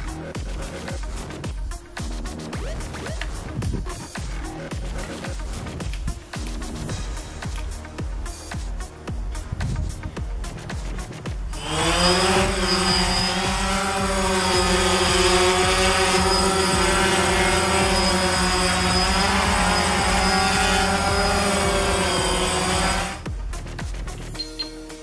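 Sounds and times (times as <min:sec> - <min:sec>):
drone motors whining and buzzing: 0:10.9 - 0:24.8.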